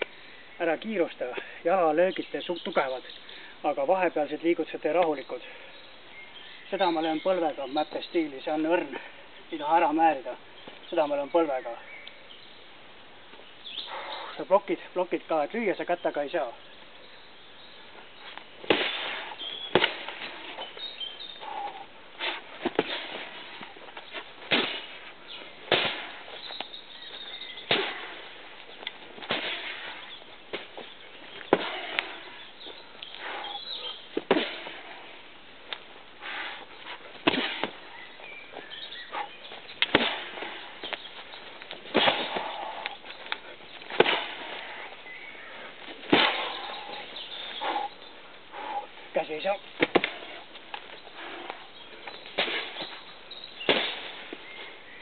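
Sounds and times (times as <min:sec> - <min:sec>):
punches thudding on punching bags: 0:25.7 - 0:26.2, 0:27.7 - 0:28.2, 0:37.2 - 0:37.8, 0:39.9 - 0:40.6.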